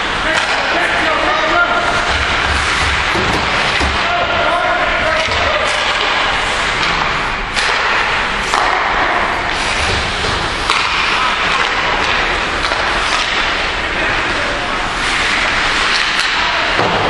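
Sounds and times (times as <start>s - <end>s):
ice rink rushing din: 0.0s - 17.0s
hockey sticks and puck knocking: 0.3s - 14.1s, 15.0s - 17.0s.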